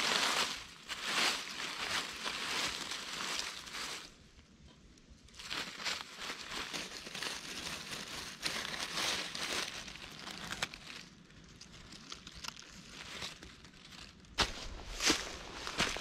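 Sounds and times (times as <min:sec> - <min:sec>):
crinkling rustle with sharp snaps: 0:00.0 - 0:16.0.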